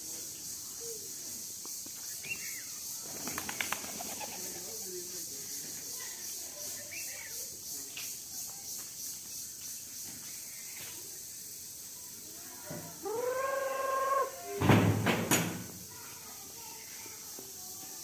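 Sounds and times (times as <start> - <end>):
bird cooing: 13.0 - 14.6.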